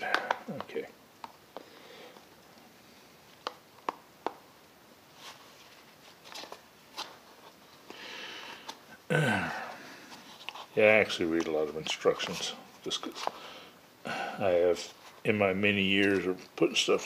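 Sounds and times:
soft rustling: 5.1s - 8.9s, 9.7s - 13.6s, 14.6s - 17.0s.

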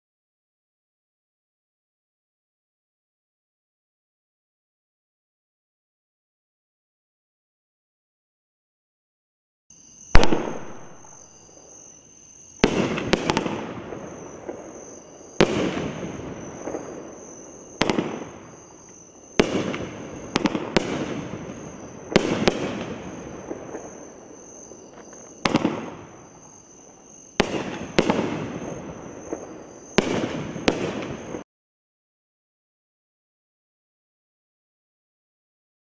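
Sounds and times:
fireworks bangs with echo: 10.1s - 11.2s, 12.6s - 26.5s, 27.3s - 31.4s.

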